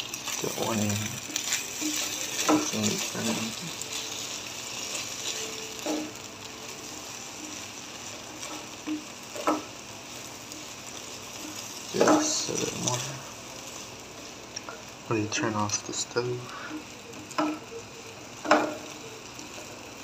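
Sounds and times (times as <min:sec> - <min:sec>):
eggs sizzling in a frying pan: 0:00.0 - 0:20.0
spatula scraping a pan: 0:00.2 - 0:06.3.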